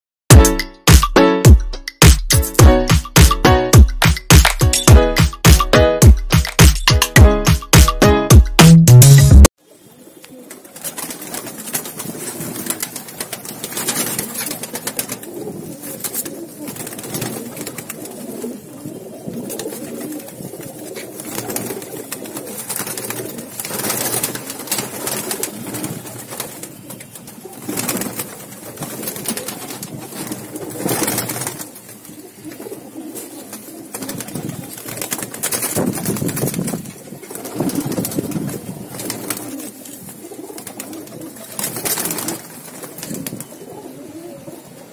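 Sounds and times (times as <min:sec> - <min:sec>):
pigeons cooing: 0:09.6 - 0:44.9.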